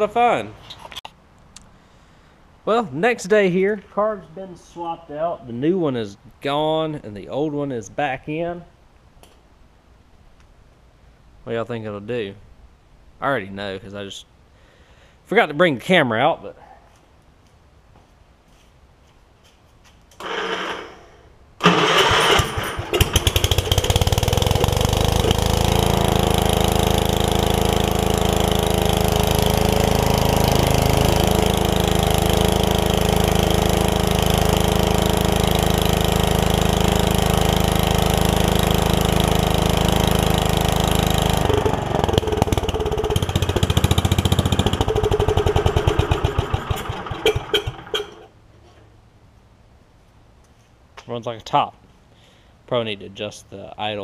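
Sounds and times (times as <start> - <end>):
tractor engine starting and running: 20.2 - 48.9.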